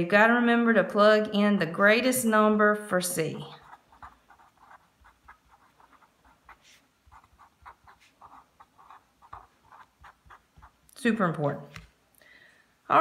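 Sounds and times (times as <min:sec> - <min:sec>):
felt-tip pen scratching on paper: 0:03.4 - 0:11.0.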